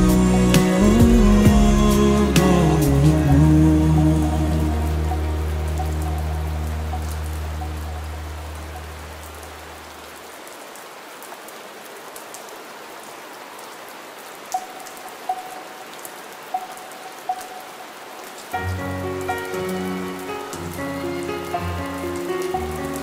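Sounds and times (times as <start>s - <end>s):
vocal chord singing: 0.0s - 9.3s
steady rain falling: 0.0s - 23.0s.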